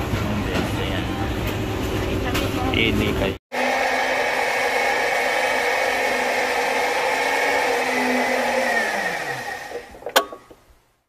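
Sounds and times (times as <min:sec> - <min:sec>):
motor whirring and winding down: 0:03.6 - 0:10.1.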